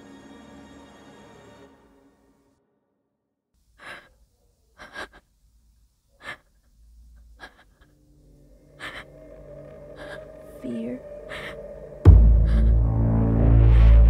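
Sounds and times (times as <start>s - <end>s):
music: 0.0s - 3.3s, 8.0s - 14.0s
heavy ragged breathing and gasps: 3.8s - 5.4s, 6.1s - 13.0s
low rumble: 10.0s - 14.0s.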